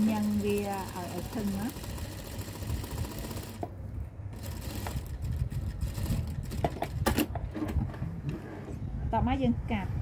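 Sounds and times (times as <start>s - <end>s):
sewing machine stitching: 0.0s - 3.7s, 4.4s - 6.7s.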